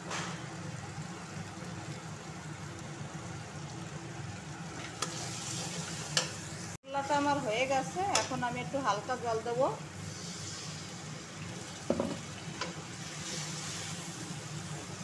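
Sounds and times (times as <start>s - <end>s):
masala frying in oil: 0.0s - 15.0s
metal spatula clicking on pan: 8.1s - 8.4s.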